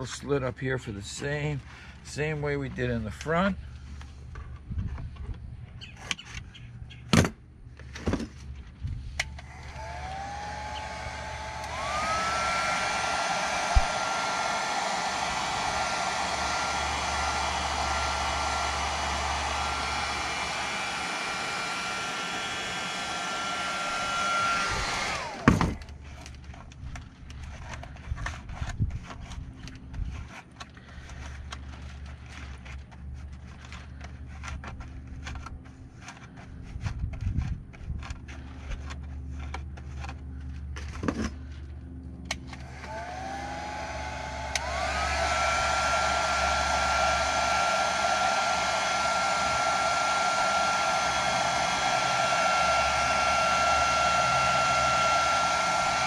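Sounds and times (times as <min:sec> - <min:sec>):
heat gun fan whine: 0:07.9 - 0:56.0
heat gun blowing hiss: 0:09.4 - 0:25.7, 0:42.7 - 0:56.0.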